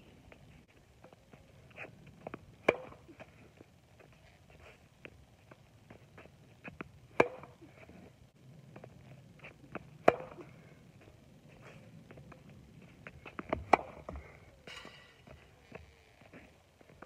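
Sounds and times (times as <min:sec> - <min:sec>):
tennis ball bouncing: 0:02.2 - 0:03.1, 0:06.7 - 0:07.6, 0:09.7 - 0:10.4, 0:13.3 - 0:14.2
racket hitting tennis ball: 0:02.6 - 0:03.1, 0:07.1 - 0:07.6, 0:10.0 - 0:10.4, 0:13.4 - 0:14.1.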